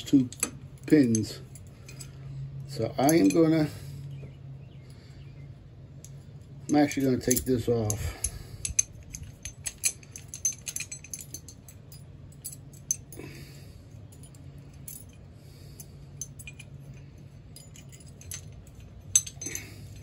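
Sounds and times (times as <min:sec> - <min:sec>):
small metal parts clinking: 0:00.0 - 0:04.3, 0:06.0 - 0:20.0
low steady hum: 0:00.0 - 0:20.0.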